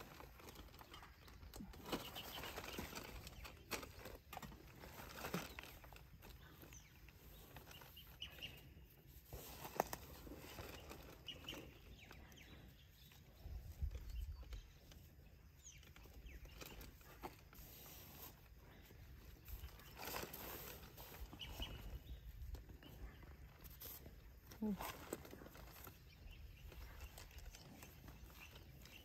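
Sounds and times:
clicks of tying branch: 0.0s - 8.6s, 9.2s - 12.4s
faint rustles: 0.0s - 29.0s.

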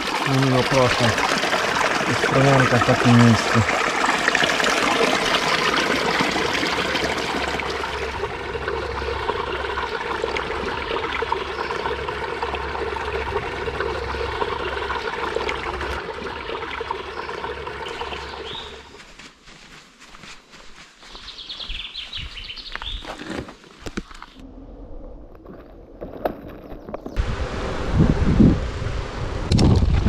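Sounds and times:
stream trickling over rock: 0.0s - 19.1s.

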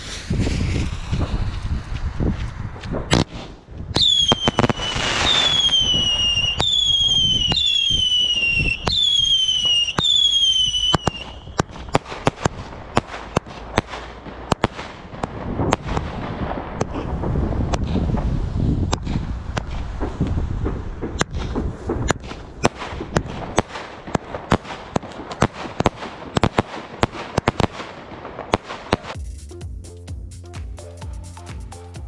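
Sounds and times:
whistling firework shots: 0.0s - 2.0s, 3.0s - 18.3s
low rumble: 0.0s - 4.0s
crackling firework bangs: 0.0s - 29.2s
firework bangs: 0.0s - 29.2s.

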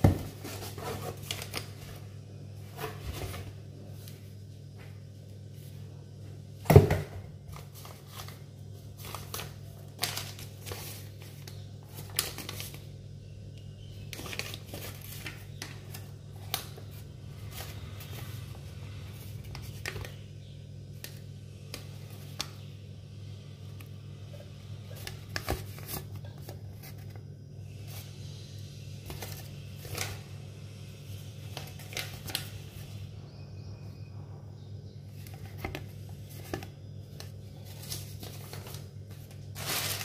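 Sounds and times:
paper rustling and crackling: 0.0s - 2.1s, 7.5s - 12.9s, 14.0s - 18.6s, 24.9s - 27.2s, 31.5s - 33.0s, 35.2s - 40.0s
steady low hum: 0.0s - 40.0s.

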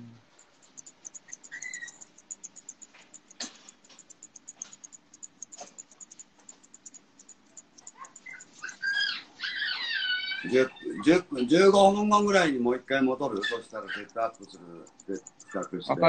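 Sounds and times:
loud clicks: 0.4s - 9.3s
scissors snipping: 0.7s - 9.3s, 13.2s - 15.8s.

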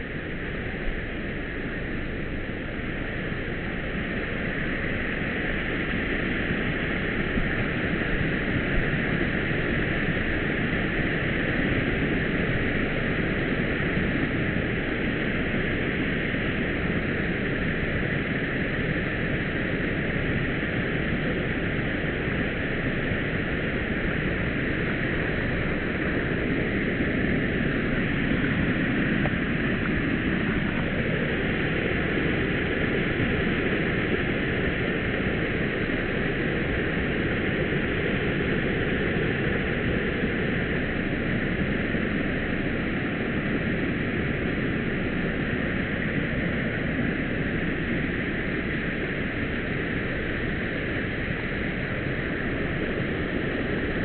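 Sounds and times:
small waterfall rushing: 21.7s - 41.4s.

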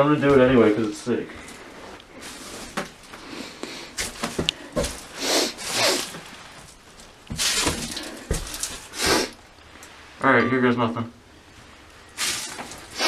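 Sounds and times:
footsteps on wooden floor: 4.0s - 5.1s, 7.3s - 9.3s.

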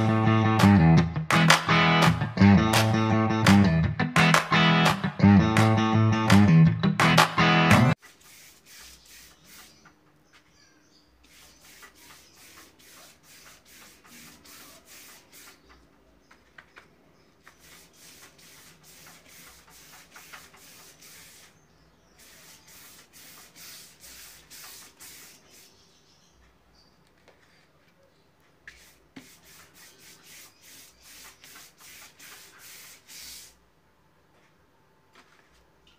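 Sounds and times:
paintbrush swishing on board: 8.0s - 9.8s, 11.2s - 15.8s, 17.4s - 21.6s, 22.2s - 25.8s, 28.7s - 33.6s.

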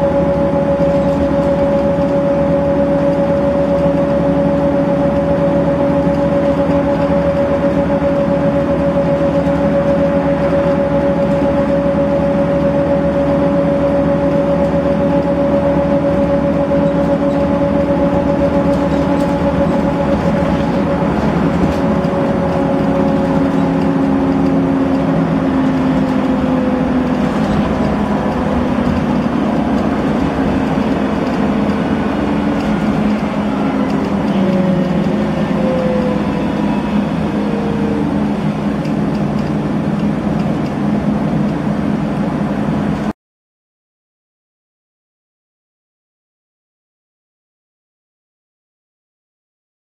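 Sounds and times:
bus engine and road noise: 0.0s - 43.2s.

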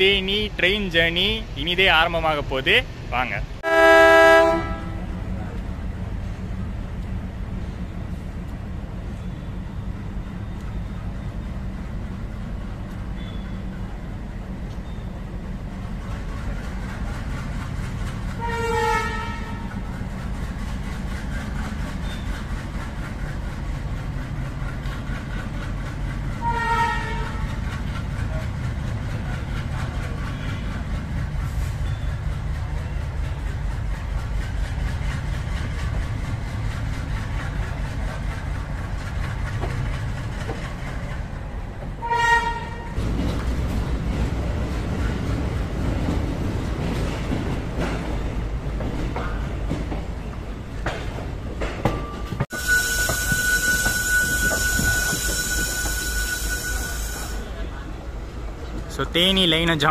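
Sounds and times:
diesel locomotive engine rumbling: 0.0s - 59.9s
locomotive horn blasts: 3.6s - 5.1s, 18.4s - 19.7s, 26.4s - 27.5s, 42.0s - 42.9s, 52.5s - 57.6s.

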